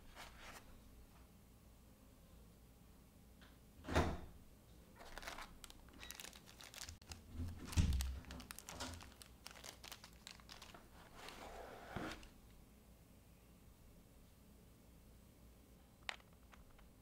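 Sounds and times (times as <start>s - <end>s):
plastic bag crinkling: 5.0s - 11.4s.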